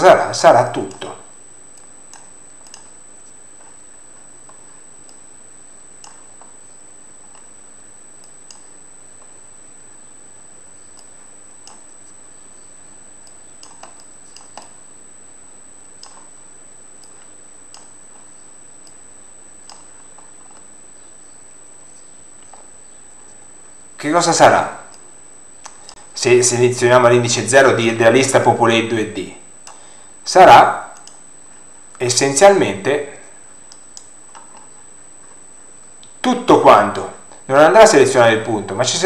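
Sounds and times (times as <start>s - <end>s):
background hiss: 0.0s - 39.0s
computer mouse clicks: 1.7s - 3.8s, 4.4s - 5.3s, 6.0s - 7.5s, 8.2s - 9.3s, 10.9s - 12.2s, 13.2s - 14.8s, 15.8s - 16.4s, 17.0s - 19.0s, 19.6s - 21.4s, 22.0s - 23.4s, 24.9s - 26.1s, 29.6s - 29.8s, 30.9s - 31.2s, 33.7s - 34.8s.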